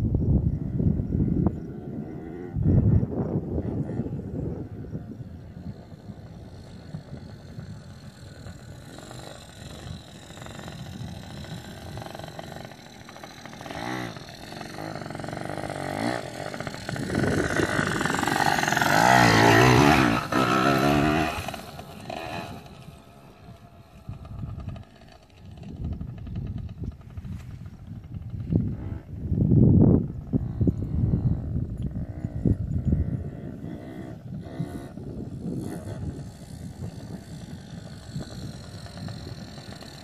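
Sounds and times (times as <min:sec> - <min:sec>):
dirt bike engine revving: 0:00.6 - 0:40.0.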